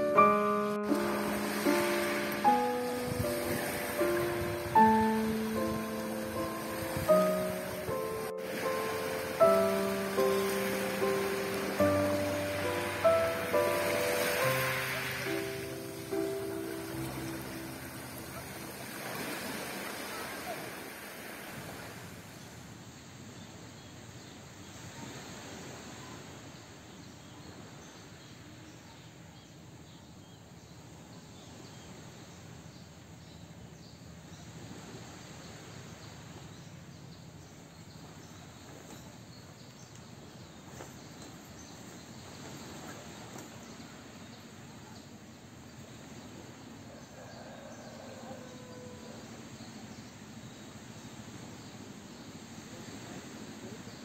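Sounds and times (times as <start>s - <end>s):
insects chorus in trees: 0.9s - 24.0s, 34.3s - 54.0s.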